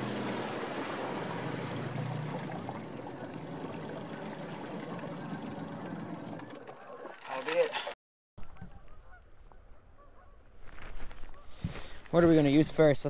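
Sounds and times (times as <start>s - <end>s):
outboard motor humming: 0.0s - 8.0s
water lapping against hull: 0.0s - 8.0s.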